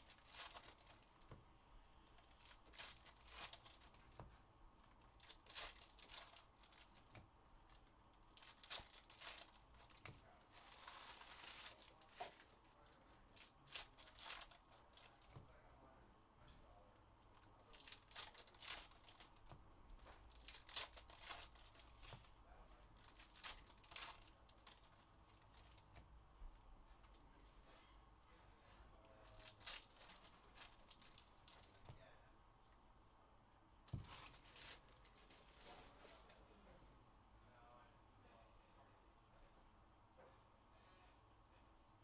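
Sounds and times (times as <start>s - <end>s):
foil wrappers crinkling and tearing: 0.0s - 1.4s, 2.1s - 4.2s, 4.8s - 15.4s, 17.3s - 22.2s, 22.9s - 26.0s, 29.2s - 31.9s, 33.9s - 36.4s.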